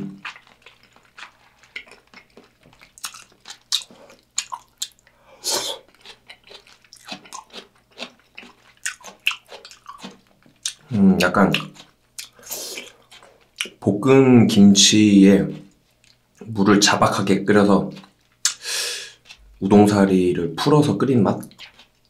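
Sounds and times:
close chewing with mouth clicks: 0.0 - 13.8, 15.3 - 16.5, 17.8 - 19.7, 21.4 - 22.0.

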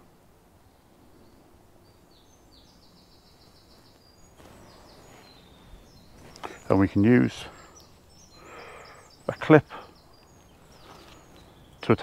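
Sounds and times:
songbirds chirping and trilling: 0.0 - 12.0
soft rustle: 3.4 - 6.7, 10.2 - 11.6.

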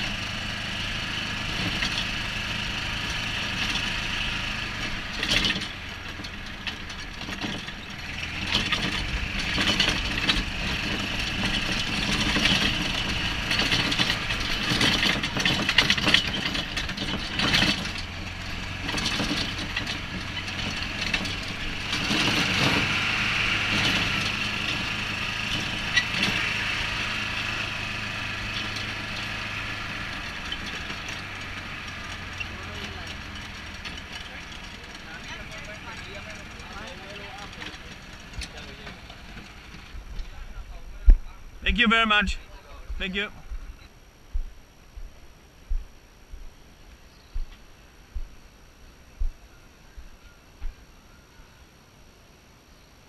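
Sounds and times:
rattles and knocks over paving: 0.0 - 41.3
golf cart motor humming: 0.0 - 43.9.

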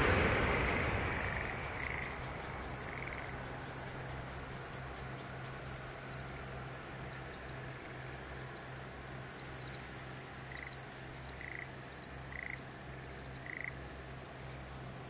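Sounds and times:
low steady hum: 0.0 - 15.0
frogs croaking: 1.2 - 14.6
high chirping frog calls: 10.5 - 13.8.

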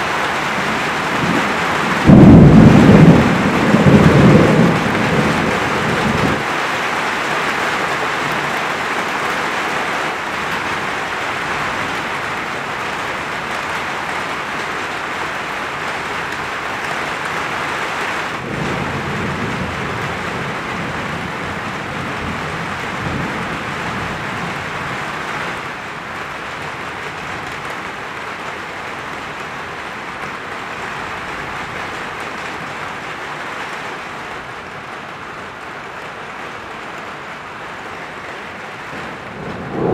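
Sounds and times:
rain hissing: 0.0 - 39.9
thunder rumble: 0.3 - 6.5, 18.4 - 25.8, 38.1 - 39.9.

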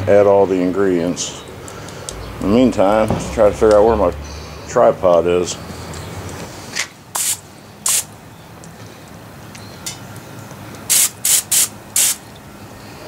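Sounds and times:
aerosol spray hissing: 7.2 - 8.1, 10.9 - 12.2.

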